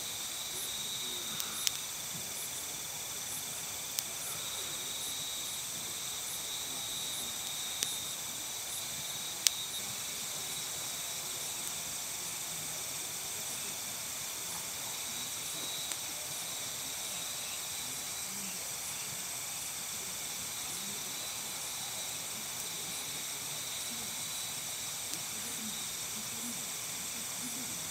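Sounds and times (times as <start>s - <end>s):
crickets and insects trilling: 0.0s - 27.9s
campfire pops: 0.6s - 3.0s, 3.7s - 5.5s, 6.1s - 11.9s, 14.4s - 17.1s.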